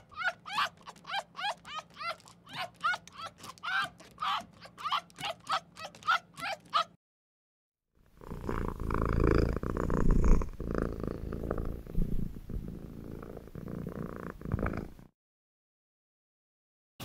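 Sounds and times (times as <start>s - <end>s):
cat purring: 8.1s - 15.1s.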